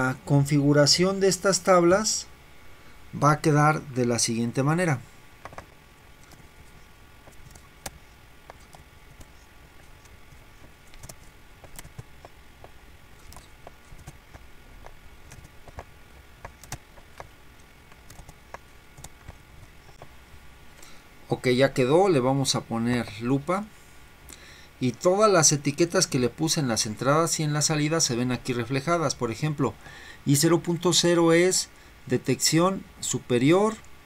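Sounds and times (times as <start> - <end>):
low background hum: 0.0 - 34.0
mouse clicks: 7.2 - 20.1
keyboard keystrokes: 10.0 - 12.4, 13.2 - 17.3, 17.9 - 20.1.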